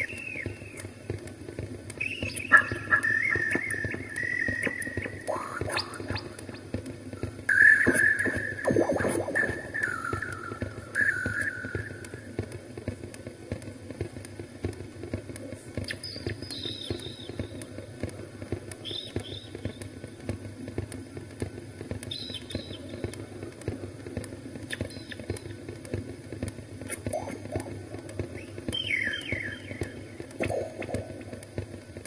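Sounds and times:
low crackling drone: 0.0 - 15.9, 25.3 - 32.0
short high chirps: 2.0 - 6.6, 7.2 - 12.3.

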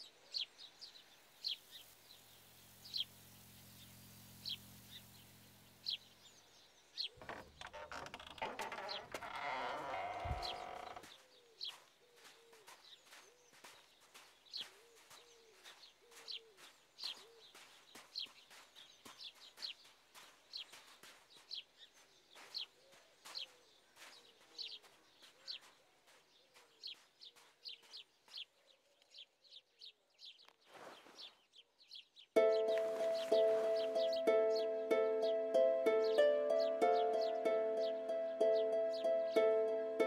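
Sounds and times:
small birds chirping: 0.0 - 40.0.

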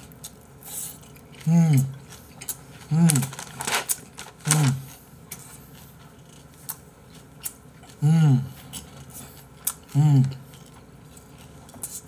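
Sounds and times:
man chewing food: 0.0 - 12.0
man humming mm: 1.4 - 2.0, 2.9 - 3.4, 8.0 - 8.7, 9.8 - 10.5.

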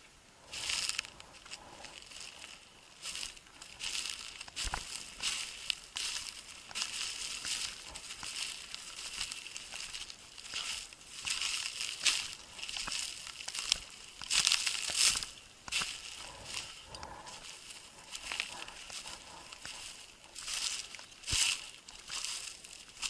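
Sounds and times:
footsteps crunching on grass and snow: 0.4 - 23.0.

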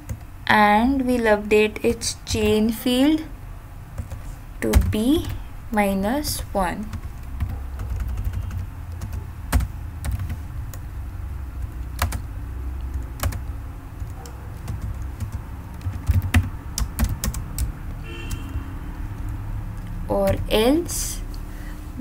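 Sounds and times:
steady low hum: 0.0 - 22.0
keyboard typing clicks: 11.6 - 18.4.

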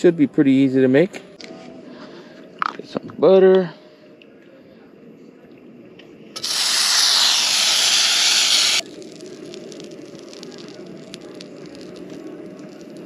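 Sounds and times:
butter sizzling in a pan: 6.4 - 13.0.

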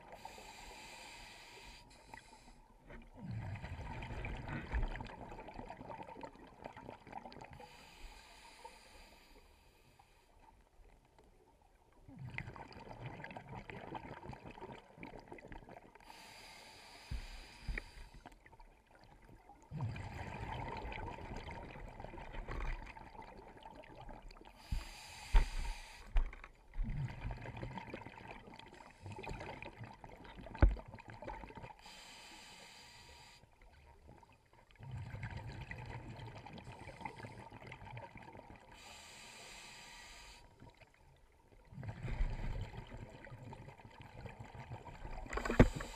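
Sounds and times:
regulator inhale hiss: 0.1 - 2.7, 7.6 - 10.3, 16.0 - 18.3, 24.6 - 26.2, 31.8 - 33.5, 38.7 - 40.6, 45.3 - 45.9
exhaled bubbles rumbling: 3.0 - 7.5, 19.1 - 24.8, 26.2 - 31.6, 41.7 - 45.9.

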